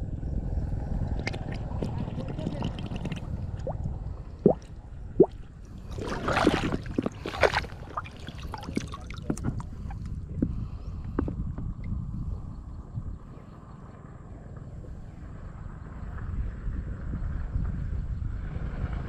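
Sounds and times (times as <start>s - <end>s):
low rumble: 0.0s - 19.0s
water splashing and sloshing: 1.0s - 11.8s.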